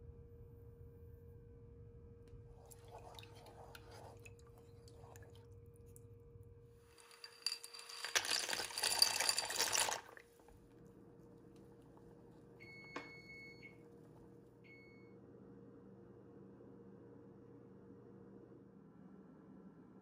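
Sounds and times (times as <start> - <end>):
pasta pouring into boiling water: 6.9 - 10.4.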